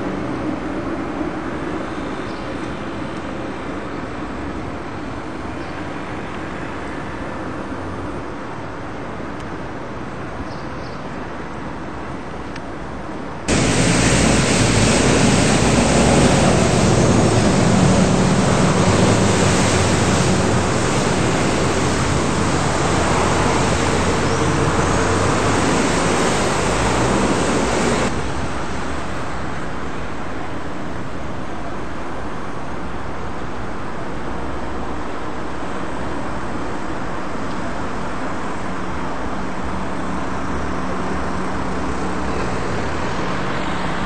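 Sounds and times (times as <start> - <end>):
loud rushing noise: 13.5 - 31.5
passing cars: 13.5 - 31.5.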